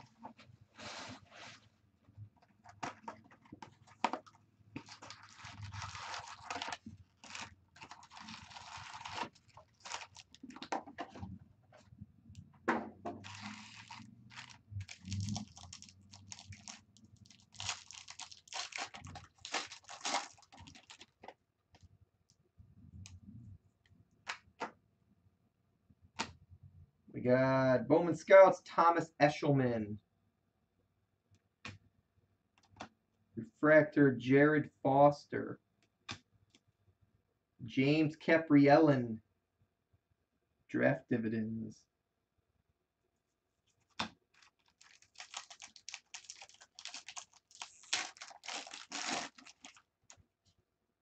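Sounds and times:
foil packs crinkling and tearing: 4.8 - 10.7, 13.2 - 21.2, 44.3 - 49.9.

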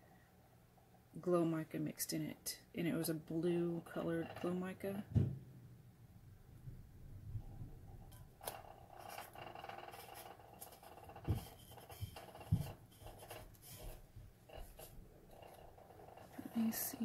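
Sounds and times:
soft knocks of metal tumbler: 7.3 - 17.0
fingers rubbing vinyl on metal: 8.1 - 17.0.

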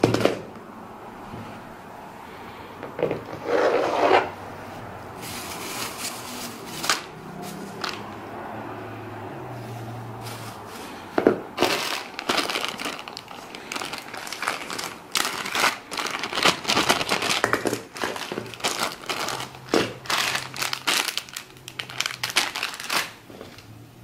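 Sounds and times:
plastic bags crinkling: 5.1 - 8.2, 10.1 - 23.7.

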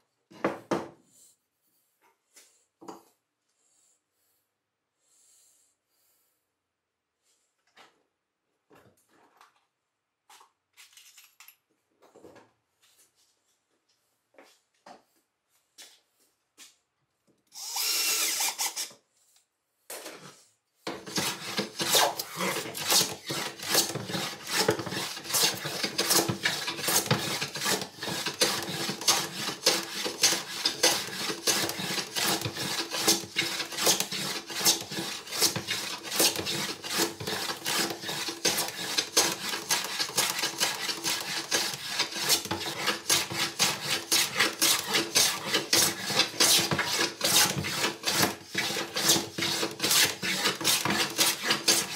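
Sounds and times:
cordless drill: 17.5 - 19.0
hand plane shaving wood: 20.8 - 51.9.

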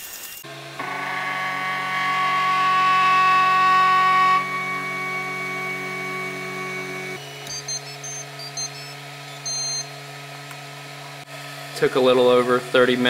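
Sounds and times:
printer humming: 0.4 - 11.3
buzzer beeping high-pitched tune: 0.8 - 9.9.

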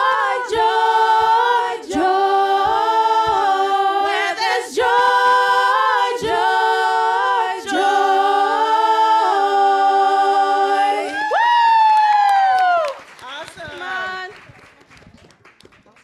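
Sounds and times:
women singing a cappella: 0.0 - 11.4.

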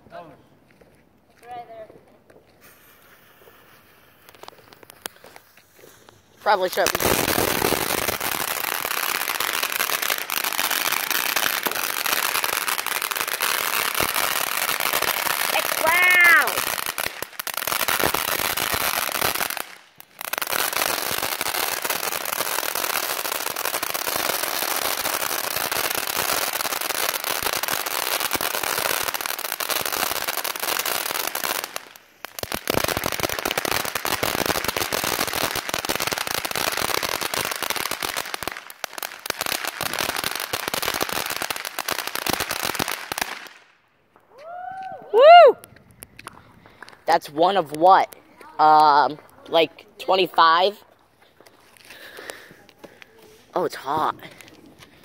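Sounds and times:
fountain firework crackling hiss: 2.5 - 43.8.

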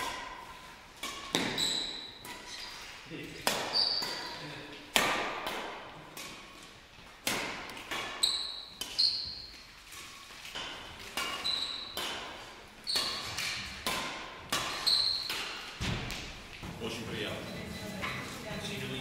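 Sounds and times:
rackets striking shuttlecock: 0.0 - 2.8, 3.4 - 16.6
sneakers squeaking on court: 1.2 - 2.8, 3.6 - 4.4, 8.1 - 9.7, 10.8 - 12.2, 12.8 - 13.7, 14.6 - 15.7.

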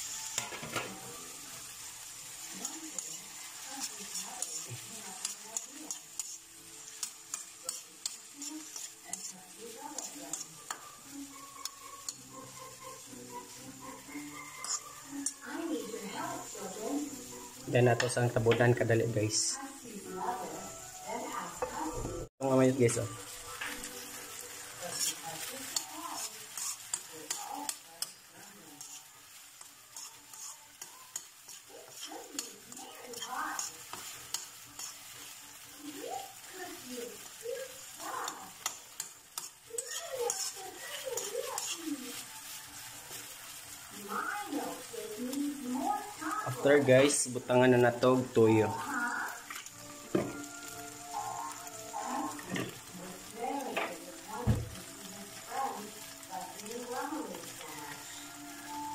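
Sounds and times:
oil sizzling in a wok: 0.0 - 58.9
spoon knocking shells and pan: 0.2 - 1.8, 2.4 - 13.0, 23.4 - 36.4, 37.7 - 42.4, 49.4 - 53.0.

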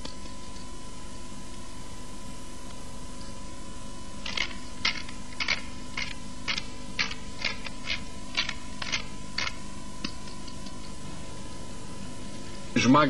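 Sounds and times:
pepper mill grinding: 4.2 - 9.6.

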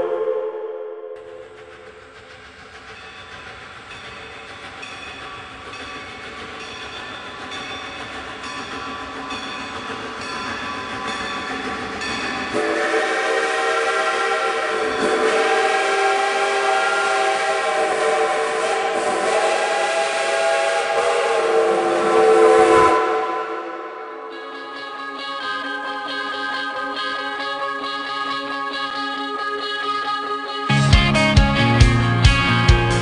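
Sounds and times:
multi-tone train whistle: 0.0 - 2.0, 12.4 - 31.7
train wheels knocking: 1.2 - 22.3.

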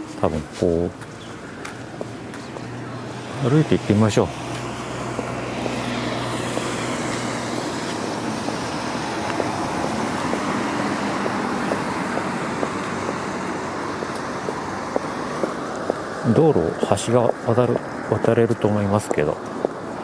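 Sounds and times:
footsteps on stone paving: 0.0 - 3.3, 4.3 - 16.4, 19.0 - 20.0
cars passing on road: 0.0 - 20.0
small truck engine hum: 1.2 - 17.0.

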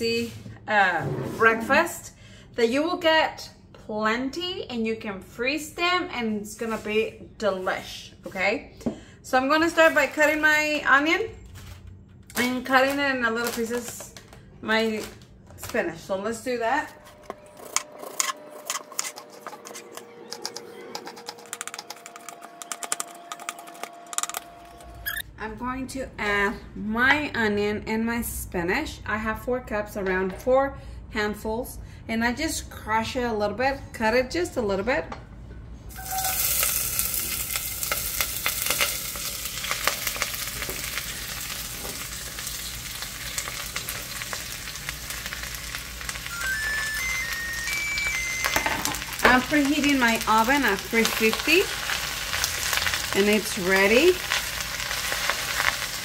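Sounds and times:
vegetables sizzling in hot oil: 35.9 - 56.0.

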